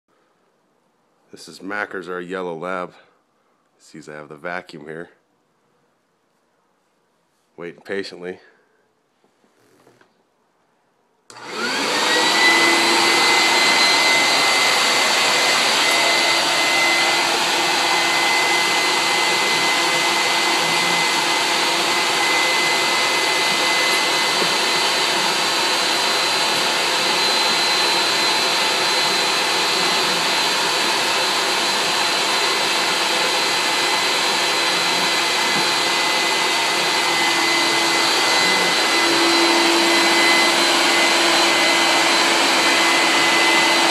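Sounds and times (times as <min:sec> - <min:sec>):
vacuum cleaner motor whining: 0:11.3 - 0:43.9.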